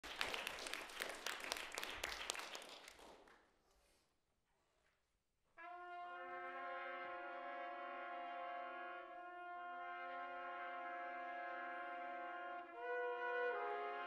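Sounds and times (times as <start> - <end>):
applause: 0.0 - 3.6
trumpet ensemble held chord: 5.6 - 14.0.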